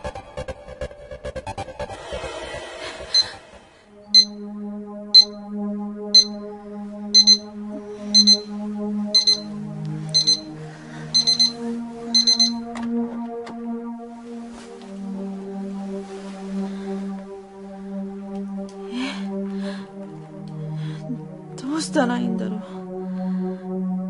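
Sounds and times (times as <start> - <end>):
soft background music: 0.0 - 24.0
alarm clock beeping: 3.1 - 3.4, 4.1 - 4.4, 5.1 - 5.5, 6.1 - 6.5, 7.1 - 12.7.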